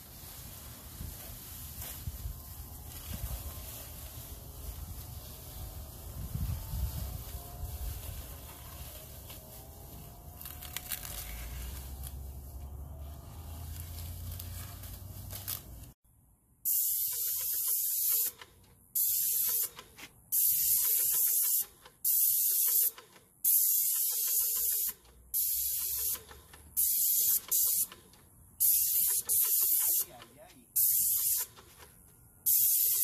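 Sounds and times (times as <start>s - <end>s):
plastic sheeting rustling: 0.0s - 16.0s
paint spray gun hissing: 16.7s - 33.0s.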